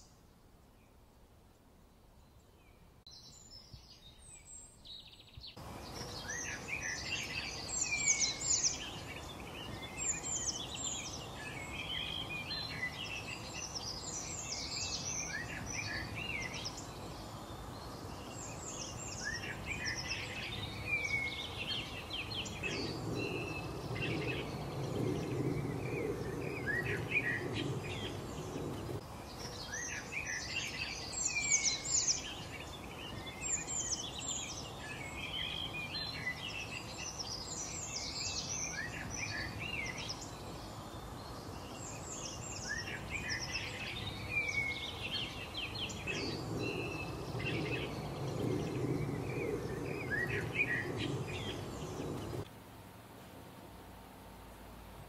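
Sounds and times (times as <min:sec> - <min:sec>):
small birds chirping: 0:00.0 - 0:01.0, 0:02.2 - 0:52.5
background hiss: 0:00.0 - 0:55.0
low rumble: 0:22.4 - 0:29.0, 0:45.7 - 0:52.5.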